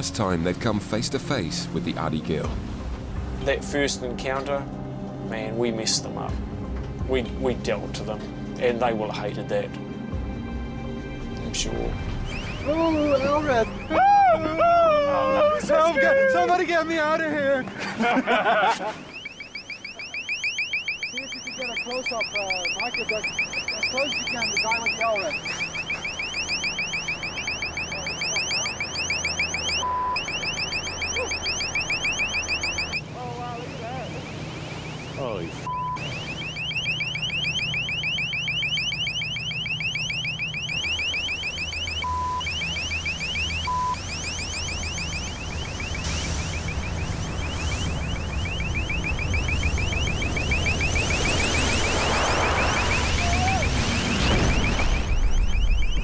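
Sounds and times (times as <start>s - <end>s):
ship engine drone: 0.0s - 56.0s
alarm siren whooping: 11.6s - 56.0s
short flat beeps: 19.0s - 56.0s.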